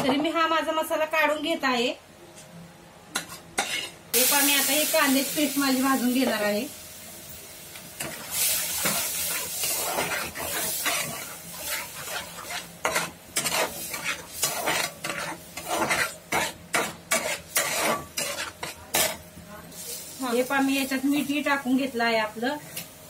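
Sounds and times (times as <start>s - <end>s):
metal spatula scraping pan: 3.2s - 4.0s, 8.0s - 19.3s
onion paste sizzling in oil: 3.2s - 23.0s.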